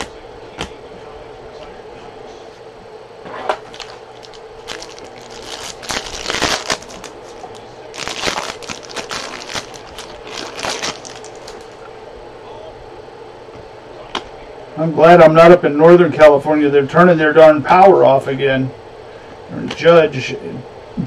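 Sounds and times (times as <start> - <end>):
foil wrapper tearing and crinkling: 3.6 - 11.8.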